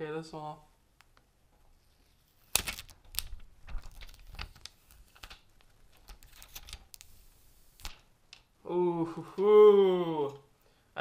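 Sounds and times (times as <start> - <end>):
plastic wrap crackling: 2.0 - 8.1.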